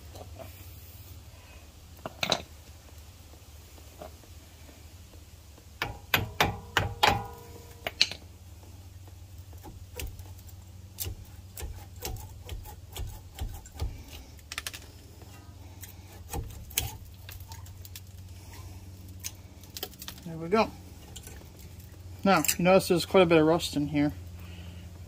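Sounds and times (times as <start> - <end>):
hammer striking metal: 5.8 - 7.6.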